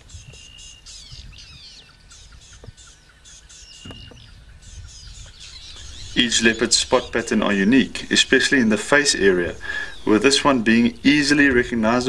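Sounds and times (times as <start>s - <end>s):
birds chirping and twittering: 0.0s - 12.0s
low background rumble: 4.1s - 12.0s.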